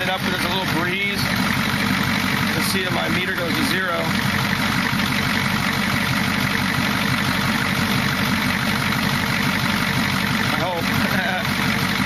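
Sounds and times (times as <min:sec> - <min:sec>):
diesel engine idling clatter: 0:00.0 - 0:12.0.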